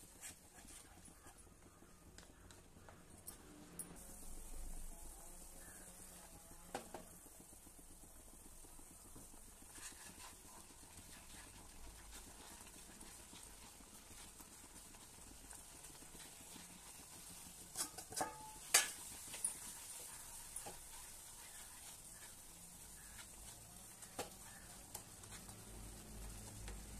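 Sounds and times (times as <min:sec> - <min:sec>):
spatula scraping a pan: 0:00.0 - 0:01.4, 0:09.6 - 0:25.6
sharp knocks against a pan: 0:17.7 - 0:19.6.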